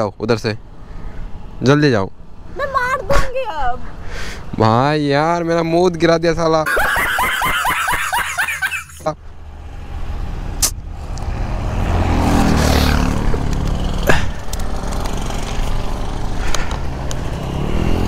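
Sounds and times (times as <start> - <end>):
vehicle engine passing: 9.3 - 18.0.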